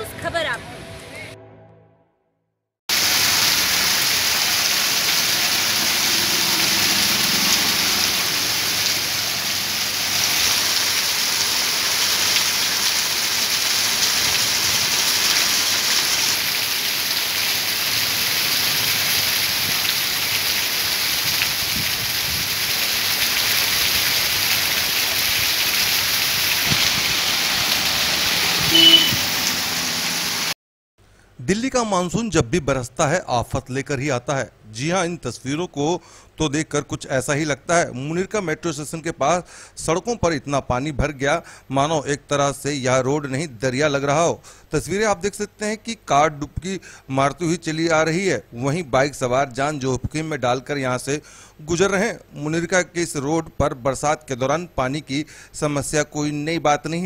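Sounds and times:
heavy rain pouring: 2.9 - 30.6
short loud tone: 28.7 - 29.3.

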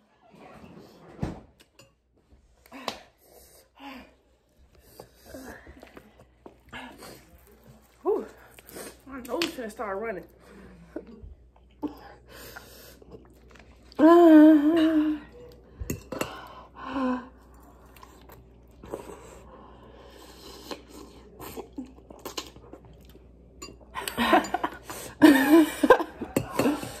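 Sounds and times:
chewing and slurping noodles: 10.9 - 14.0, 17.4 - 23.4.

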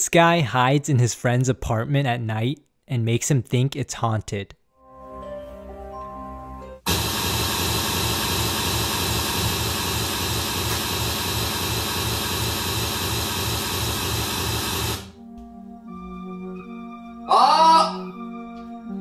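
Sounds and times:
loud static hiss: 6.9 - 15.1
faint background music: 15.2 - 19.0.

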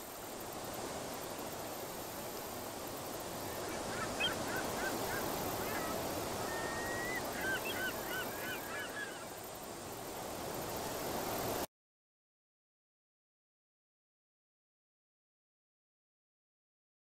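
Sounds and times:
steady background hiss: 0.0 - 11.7.

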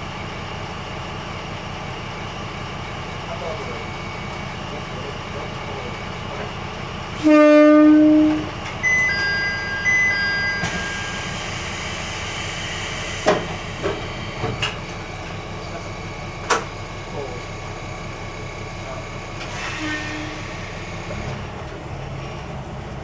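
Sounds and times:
idling engine rumble: 0.0 - 7.3, 11.2 - 19.5
train horn: 7.2 - 8.5, 19.6 - 20.6
two-tone electronic beeping: 8.8 - 11.2.

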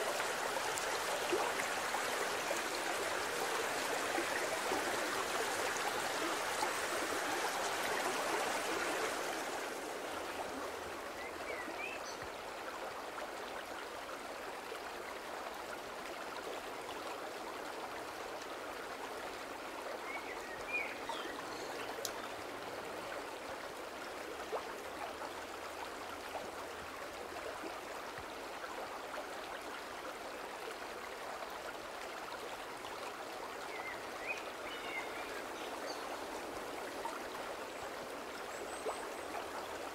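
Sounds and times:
stream rushing: 0.0 - 39.9.

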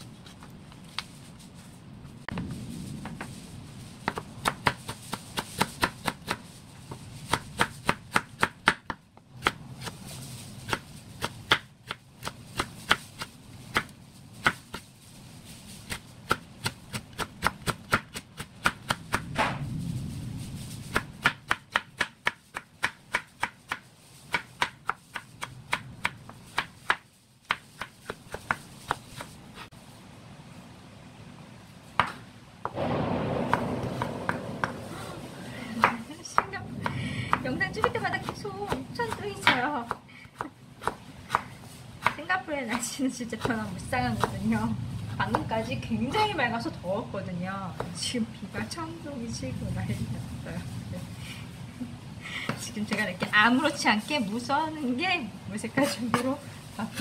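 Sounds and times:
knife chopping on wooden board: 4.0 - 6.4, 7.3 - 10.0, 10.6 - 14.8, 15.9 - 19.6, 20.9 - 29.4, 32.0 - 32.8, 37.3 - 43.6.

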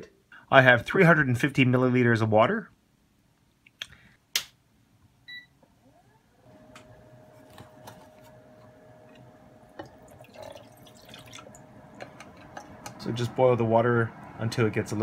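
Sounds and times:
electrical tone with low hum: 5.2 - 15.0
induction hob beep: 5.3 - 5.6
water pouring into pan: 10.0 - 11.6.

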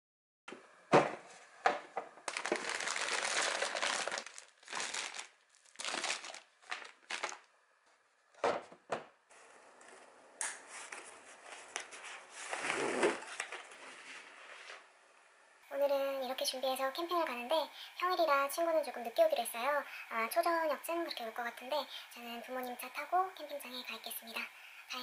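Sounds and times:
plastic packets crinkling: 2.2 - 7.6.

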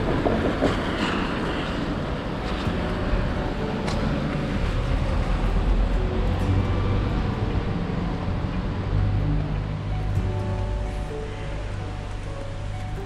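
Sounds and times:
traffic on wet road: 0.0 - 13.0.

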